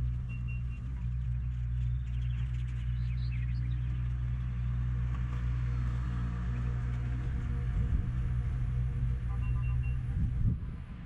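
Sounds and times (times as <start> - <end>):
low engine rumble: 0.0 - 11.0
quick short beeps: 9.3 - 10.0.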